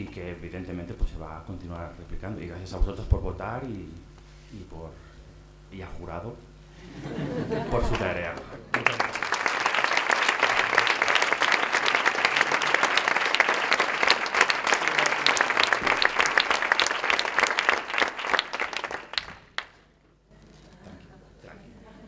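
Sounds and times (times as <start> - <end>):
audience applauding: 7.9 - 19.8.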